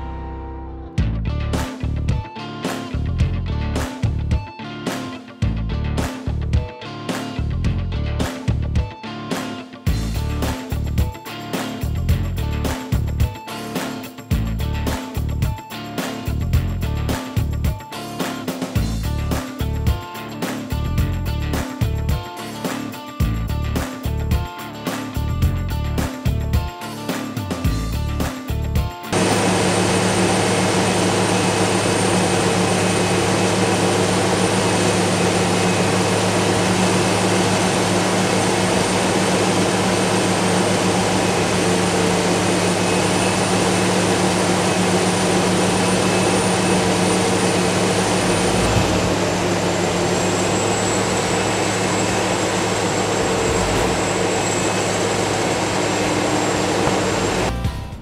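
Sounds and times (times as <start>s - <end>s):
harvester engine drone: 9.9s - 57.6s
thin high whine: 29.2s - 57.5s.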